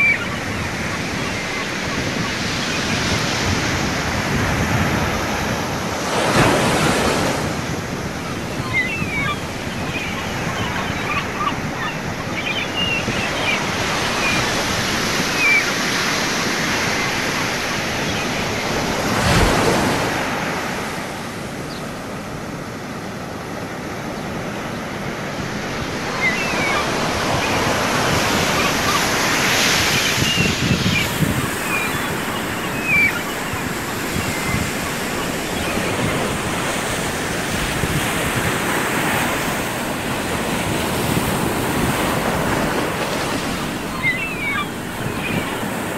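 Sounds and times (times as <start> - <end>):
ocean surf breaking on beach: 0.0 - 45.9
wind buffeting microphone: 26.7 - 45.9.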